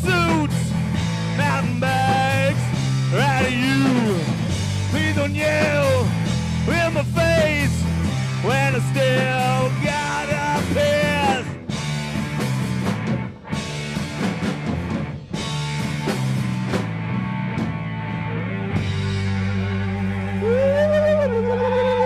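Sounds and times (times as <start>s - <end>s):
live rock band playing: 0.0s - 22.0s.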